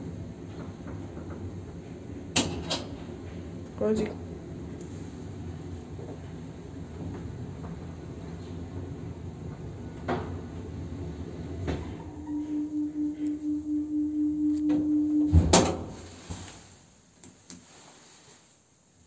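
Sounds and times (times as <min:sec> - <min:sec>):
lift running rumble: 0:00.0 - 0:16.8
pulsing hum: 0:04.2 - 0:16.2.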